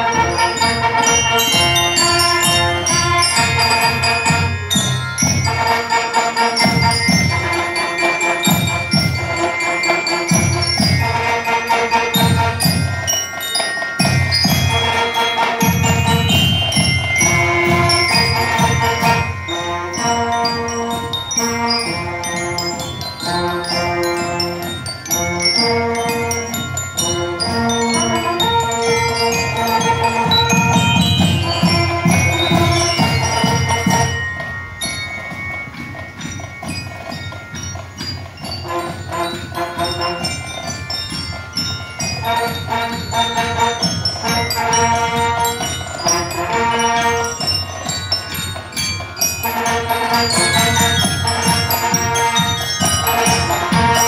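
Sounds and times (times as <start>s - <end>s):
bell lyres ringing melody: 0.0s - 54.0s
marching band playing: 0.0s - 54.0s.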